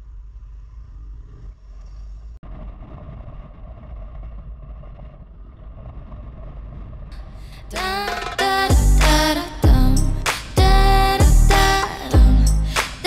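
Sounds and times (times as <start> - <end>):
wind rumble on microphone: 0.0 - 7.7.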